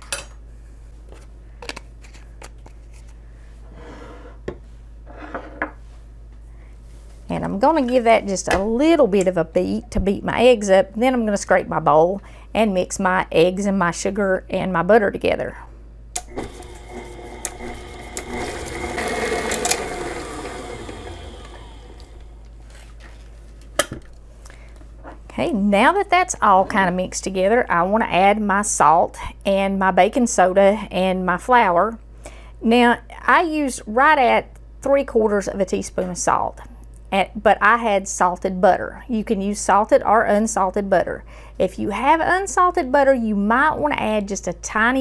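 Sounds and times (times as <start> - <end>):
electric stand mixer running: 16.2 - 22.5.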